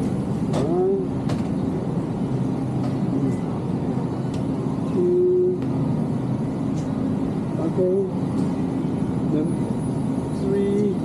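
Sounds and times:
busy supermarket rumble and clatter: 0:00.0 - 0:11.0.

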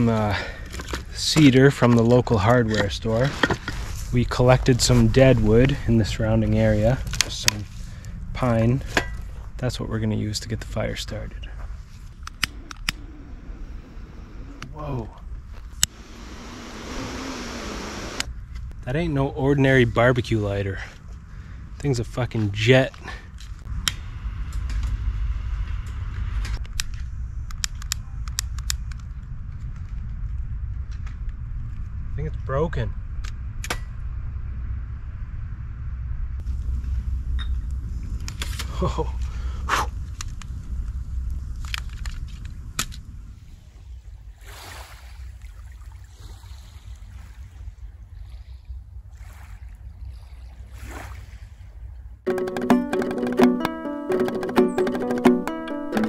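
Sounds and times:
torch lighter hissing: 0:15.8 - 0:18.3
wind rumble on microphone: 0:23.4 - 0:52.2
small waves lapping on sand: 0:43.4 - 0:51.8.

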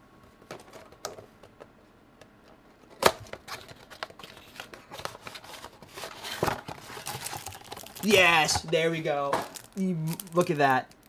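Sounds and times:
cardboard clicking and rustling: 0:02.8 - 0:08.8.

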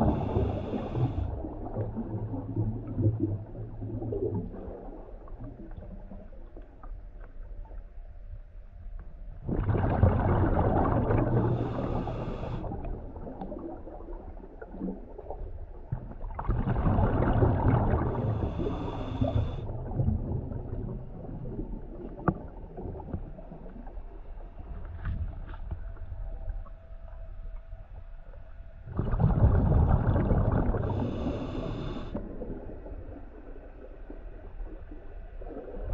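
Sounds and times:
underwater breath bubbles: 0:00.0 - 0:06.0, 0:09.4 - 0:15.3, 0:16.3 - 0:23.1, 0:28.9 - 0:33.9.

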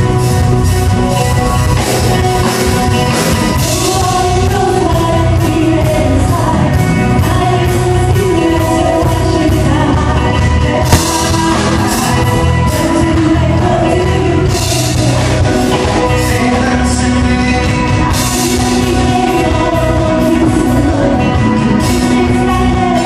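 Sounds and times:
live rock band with singing: 0:00.0 - 0:23.0
sharp hit: 0:10.9 - 0:12.5.

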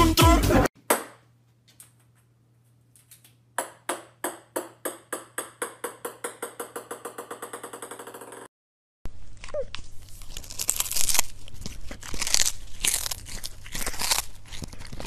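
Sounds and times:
ping pong ball bouncing on wood floor: 0:03.6 - 0:08.5.

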